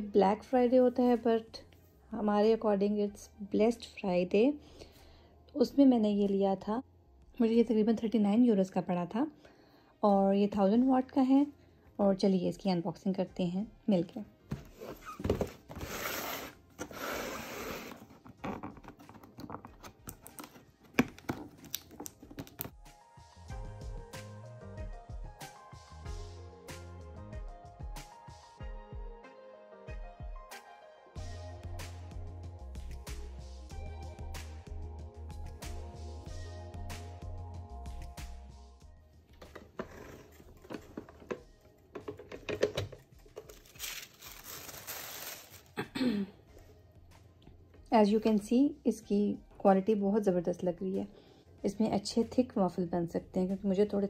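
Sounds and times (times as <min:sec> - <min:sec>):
hand rubbing cardboard box: 0:14.6 - 0:19.0
packaging rustling: 0:14.6 - 0:22.8, 0:42.1 - 0:45.8
plastic lid knocks and clicks: 0:40.6 - 0:43.0.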